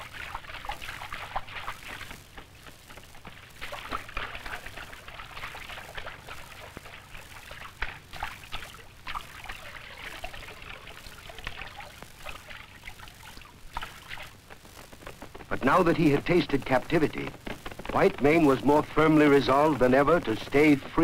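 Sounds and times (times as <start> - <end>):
water splashing and trickling: 0.0 - 2.2, 2.9 - 14.3.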